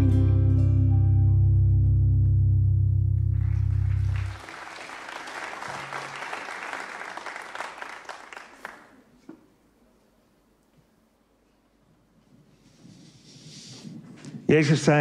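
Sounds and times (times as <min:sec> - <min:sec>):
band holding low chord: 0:00.0 - 0:04.4
congregation applauding: 0:03.4 - 0:09.2.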